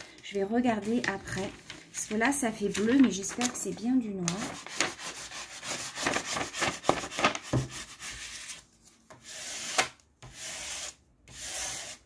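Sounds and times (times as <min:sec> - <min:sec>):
plastic film rustling and crackling: 0:00.0 - 0:07.9.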